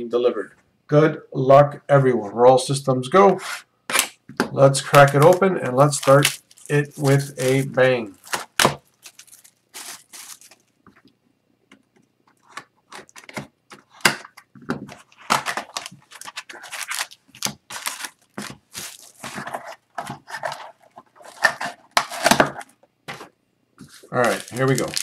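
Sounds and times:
plastic wrapping crinkling: 4.9 - 11.1, 15.0 - 22.7, 23.8 - 25.0
cardboard tearing: 5.0 - 10.6, 15.1 - 22.7, 23.9 - 25.0.

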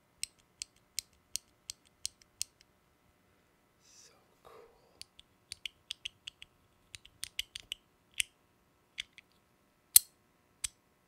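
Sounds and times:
fidget toy clicking: 5.0 - 8.3.

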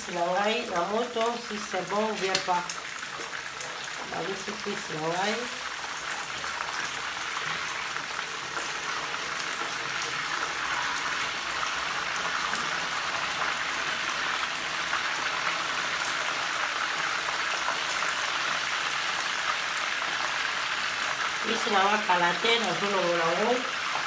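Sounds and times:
meat sizzling in frying pan: 0.0 - 24.0.

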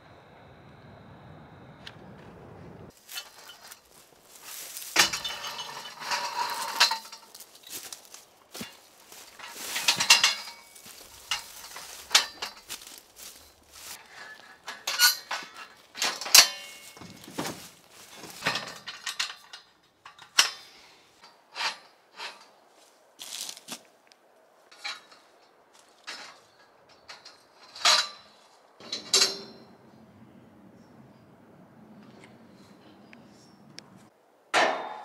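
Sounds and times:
steel scaffolding clanking: 2.9 - 22.6, 24.7 - 30.0, 34.6 - 35.0.

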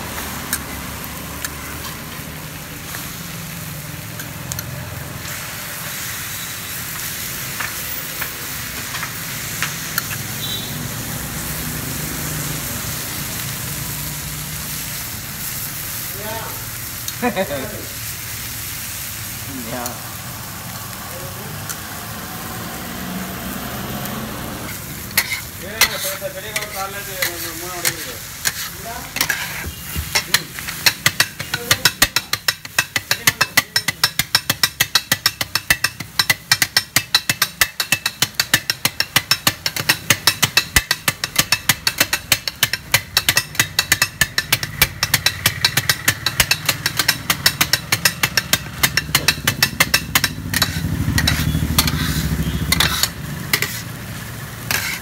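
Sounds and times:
food sizzling: 0.0 - 55.0
metal spatulas clanging on griddle: 8.8 - 10.5, 24.7 - 53.9, 54.6 - 55.0.

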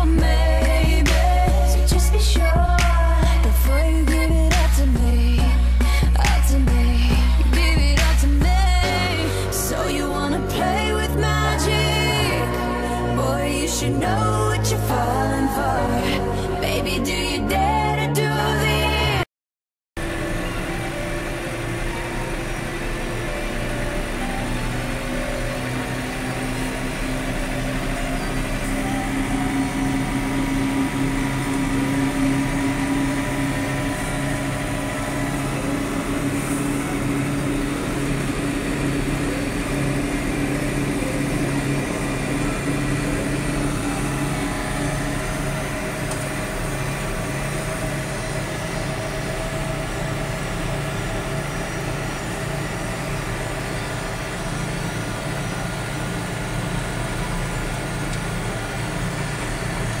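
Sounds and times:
tractor engine running: 0.0 - 17.6, 20.0 - 60.0.

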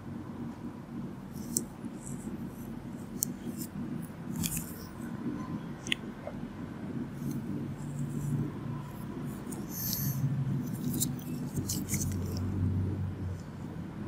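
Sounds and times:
low steady hum: 0.0 - 14.0
gloved hand rustling and scraping: 1.3 - 5.1, 7.2 - 12.6.

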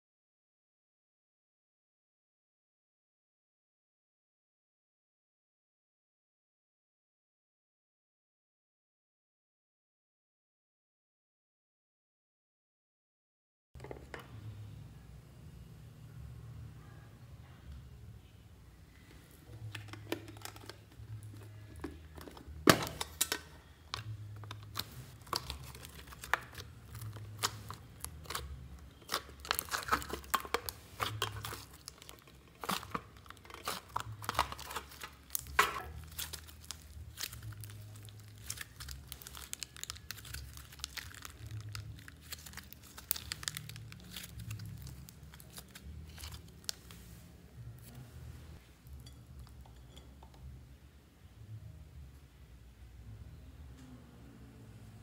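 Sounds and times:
slime crackling and popping: 24.5 - 47.0.

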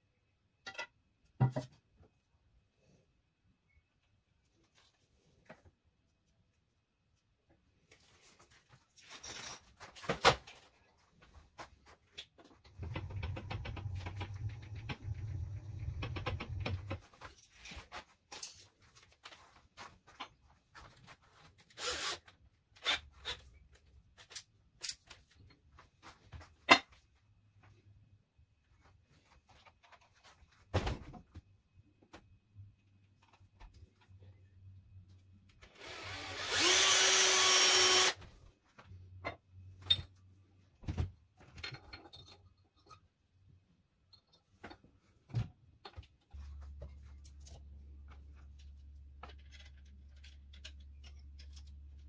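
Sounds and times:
tools and metal parts clattering: 15.9 - 19.1, 41.4 - 43.1, 45.8 - 52.0.

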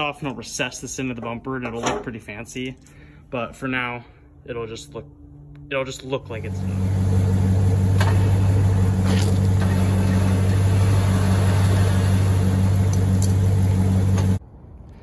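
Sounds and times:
electric winch motor whining: 6.4 - 14.4.

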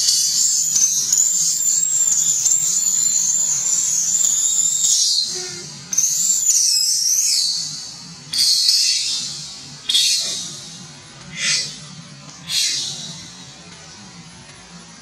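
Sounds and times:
baby monkey screaming: 8.3 - 10.7, 11.3 - 11.8, 12.4 - 13.2.

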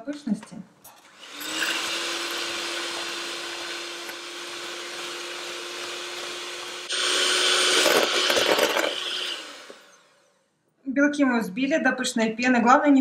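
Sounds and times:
electric hand mixer whipping: 1.0 - 10.4.

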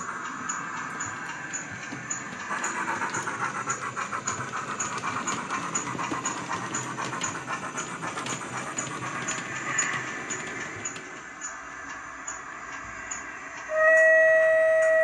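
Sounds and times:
model steam locomotive chuffing: 0.0 - 15.0.

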